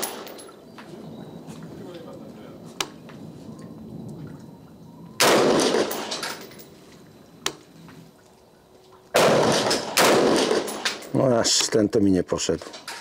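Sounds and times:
rifle shots with echo: 0:00.0 - 0:00.4, 0:05.2 - 0:06.4, 0:09.1 - 0:11.1.

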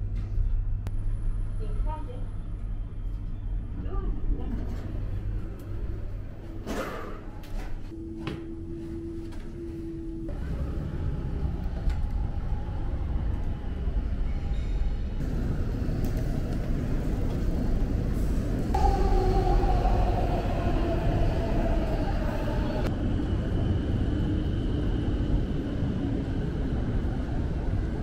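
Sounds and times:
low rumble of traffic and trains: 0:00.0 - 0:28.0
train whine falling in pitch: 0:18.8 - 0:22.9.

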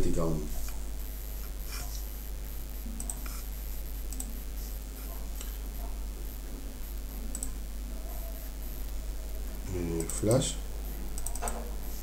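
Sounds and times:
steady low hum: 0:00.0 - 0:12.0
computer mouse clicks: 0:03.0 - 0:03.4, 0:07.3 - 0:07.6, 0:11.1 - 0:11.7.

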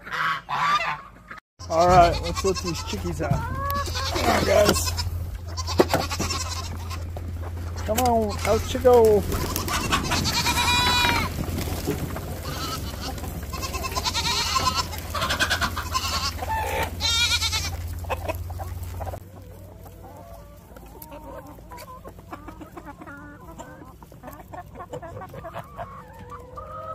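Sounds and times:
hens clucking and squawking: 0:00.0 - 0:26.9.

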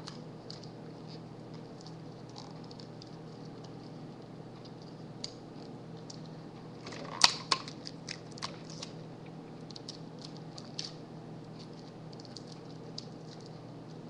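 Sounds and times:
clicks and crackles of craft materials: 0:00.0 - 0:11.0, 0:11.6 - 0:14.0
steady low hum: 0:00.0 - 0:14.0.

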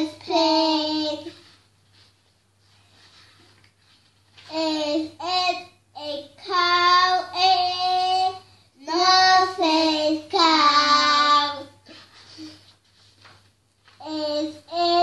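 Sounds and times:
child reading aloud sing-song: 0:00.0 - 0:01.7, 0:04.4 - 0:12.6, 0:14.0 - 0:15.0.

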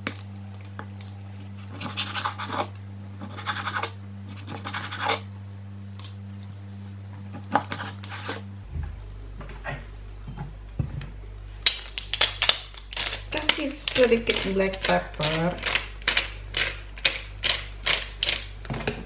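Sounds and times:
low steady hum: 0:00.0 - 0:19.0
knife scraping cutting board: 0:01.3 - 0:05.4, 0:07.1 - 0:08.6
knife slicing raw meat: 0:01.5 - 0:05.3.

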